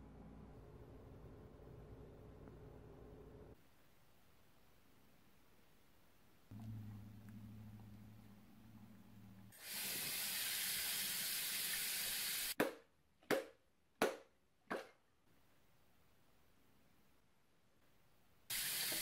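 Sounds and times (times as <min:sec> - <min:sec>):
low steady hum: 0:00.0 - 0:09.5.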